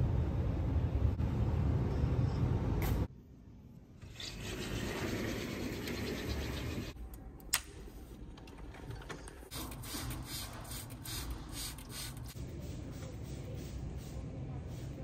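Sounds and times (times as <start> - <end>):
spray bottle hissing sprays: 9.5 - 12.4.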